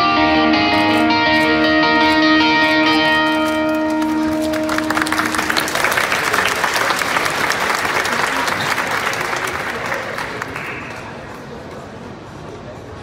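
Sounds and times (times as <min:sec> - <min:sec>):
audience applause: 0:03.4 - 0:12.0.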